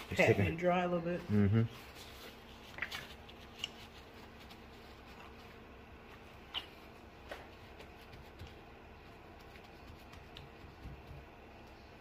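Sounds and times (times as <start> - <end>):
paper towel patting meat: 1.8 - 5.7, 6.8 - 12.0.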